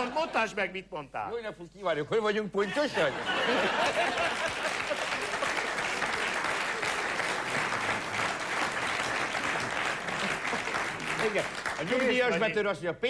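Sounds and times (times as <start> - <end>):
audience applauding: 3.4 - 12.5.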